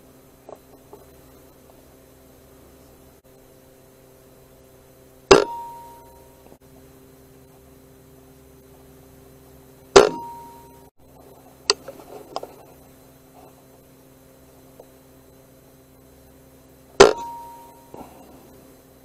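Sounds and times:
air rifle shots: 5.3s - 5.6s, 10.0s - 10.5s, 17.0s - 17.4s.

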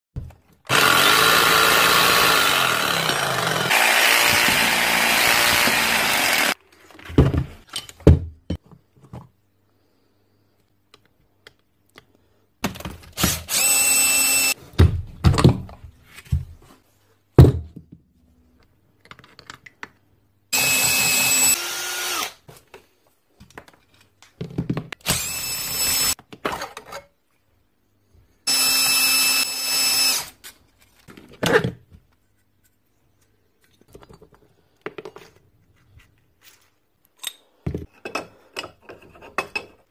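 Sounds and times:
electric motor whine: 13.5s - 14.6s, 28.5s - 30.3s.

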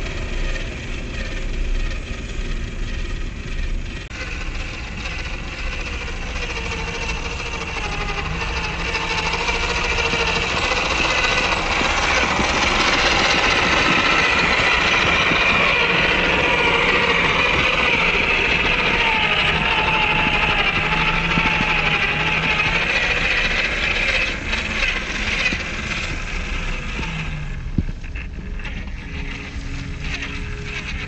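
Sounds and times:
toy car electric motor whirring: 0.0s - 31.0s.

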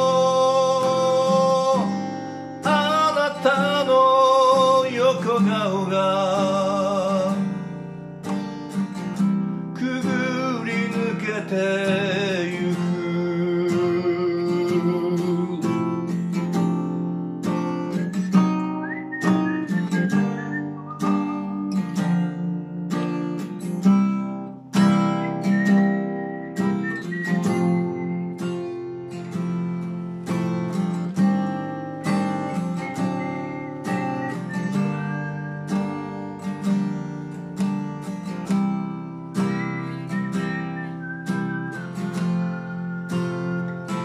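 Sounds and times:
man singing ballad: 0.0s - 7.6s, 9.7s - 15.9s
acoustic guitar picking and strumming: 0.0s - 44.0s.

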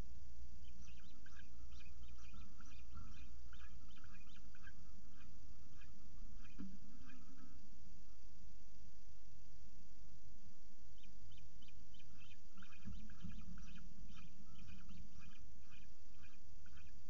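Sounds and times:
chicks chirping: 0.6s - 7.6s, 11.0s - 17.0s.

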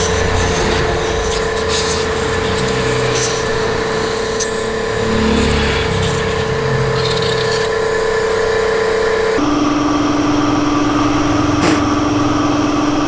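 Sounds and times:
engine humming: 0.0s - 9.4s.

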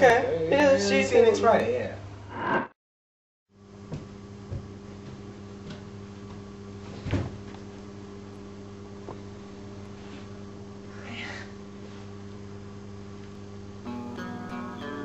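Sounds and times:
electrical hum: 3.6s - 15.0s.

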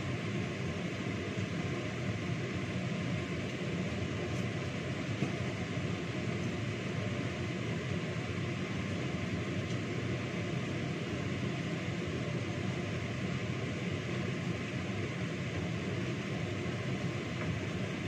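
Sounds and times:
range hood fan running: 0.0s - 18.0s.

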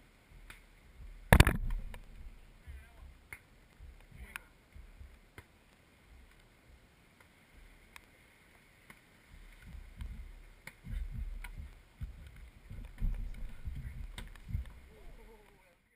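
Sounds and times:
faint sharp clicks: 3.3s - 4.5s, 7.2s - 15.8s
wind buffeting microphone: 9.3s - 15.4s.

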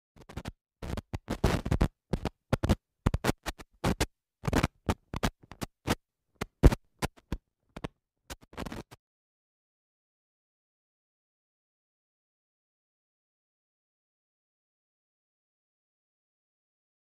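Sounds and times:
old film crackle: 0.2s - 9.0s.

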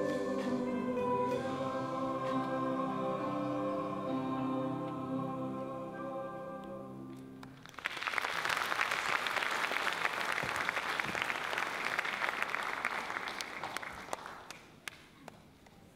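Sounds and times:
choir and band chord: 0.0s - 7.3s
audience applause: 7.4s - 14.7s.

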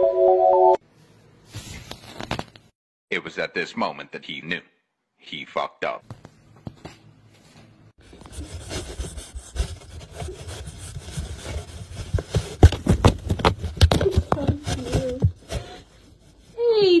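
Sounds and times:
rough rubbing and scraping: 8.1s - 15.3s.

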